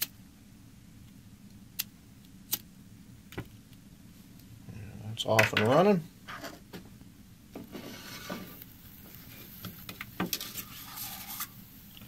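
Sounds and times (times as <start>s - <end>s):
objects handled on wooden desk: 7.6s - 11.5s.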